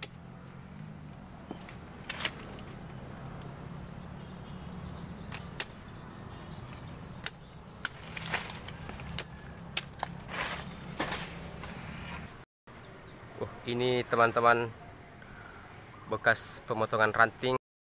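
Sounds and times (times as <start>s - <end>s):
machete knocking into palm stalk: 7.2s - 11.4s.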